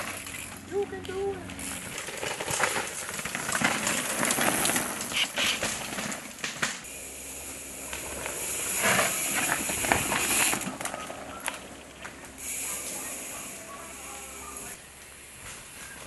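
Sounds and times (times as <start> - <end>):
bike rattles and clacks: 0.0 - 7.0, 7.6 - 16.0
tyres crunching and skidding on dirt: 0.0 - 7.0, 7.8 - 12.6.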